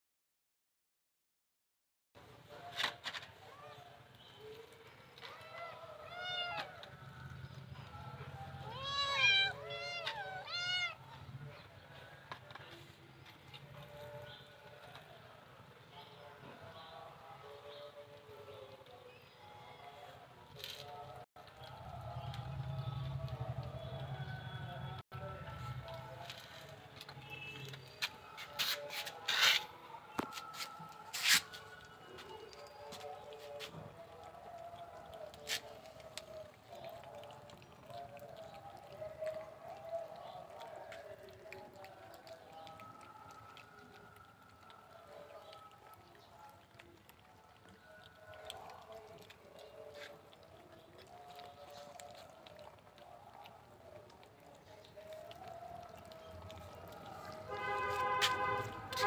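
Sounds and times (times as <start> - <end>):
kittens meowing: 5.3 - 6.8, 8.6 - 11.1
rubbing and scraping: 27.9 - 31.8.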